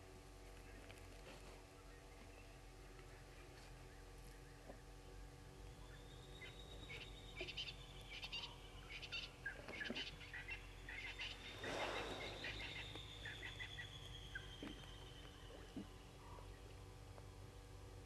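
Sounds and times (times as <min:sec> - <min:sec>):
frogs and insects trilling: 0:08.4 - 0:16.4.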